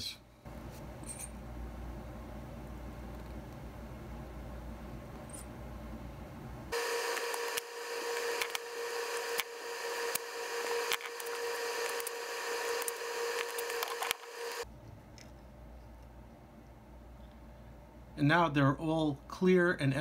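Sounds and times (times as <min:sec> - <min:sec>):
steady whine and hiss: 0:00.0 - 0:14.7.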